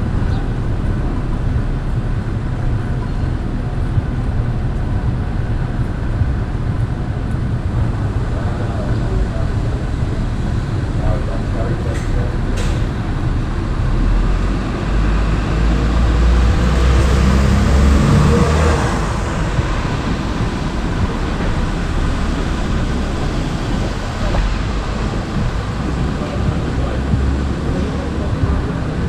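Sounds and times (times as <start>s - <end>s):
low traffic rumble and hiss: 0.0s - 29.0s
motor vehicle passing: 7.8s - 29.0s.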